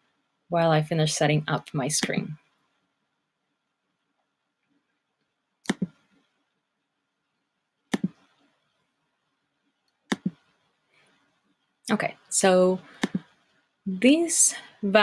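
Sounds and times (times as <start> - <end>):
computer mouse clicks: 5.6 - 6.0, 7.9 - 8.3, 9.9 - 10.4, 13.0 - 13.2.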